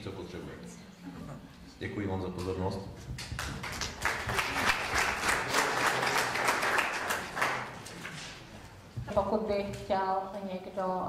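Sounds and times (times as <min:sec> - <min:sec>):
audience applauding: 0:03.2 - 0:08.3.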